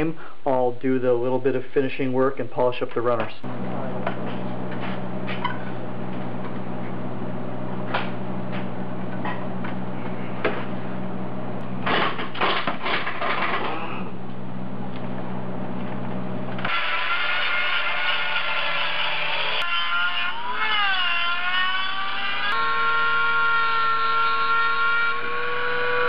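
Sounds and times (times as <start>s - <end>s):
steady low hum: 0.0s - 17.4s.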